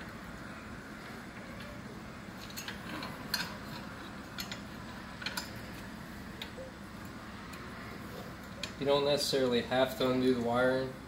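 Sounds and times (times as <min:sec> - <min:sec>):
small metallic clicks and clinks: 0:02.4 - 0:06.6.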